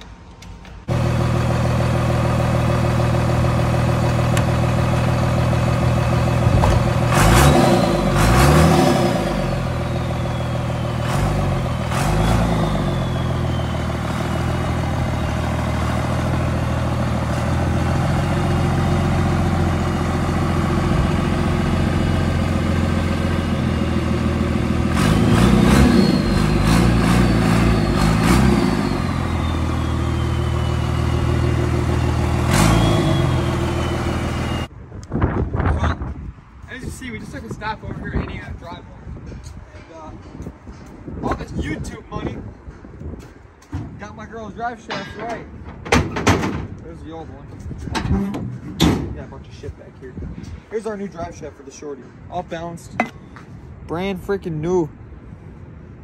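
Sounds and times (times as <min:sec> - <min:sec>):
high engine whine: 0:00.0 - 0:35.1
truck engine revving: 0:00.8 - 0:34.7.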